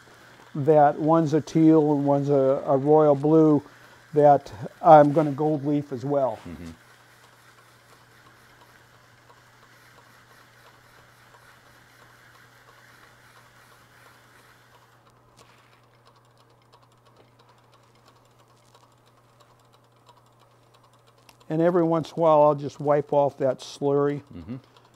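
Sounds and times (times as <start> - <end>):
wood lathe humming: 0.0 - 15.0
pad rubbing on spinning wood: 0.0 - 15.9
fast light ticks: 7.0 - 24.9.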